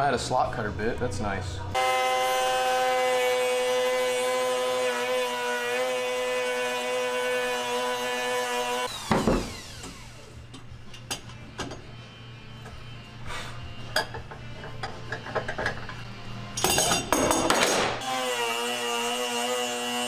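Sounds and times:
router whining: 1.8 - 10.4.

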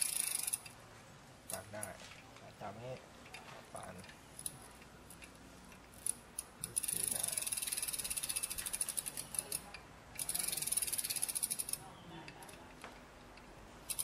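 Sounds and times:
bicycle freewheel ratchet clicking: 0.0 - 0.8, 4.0 - 12.6.

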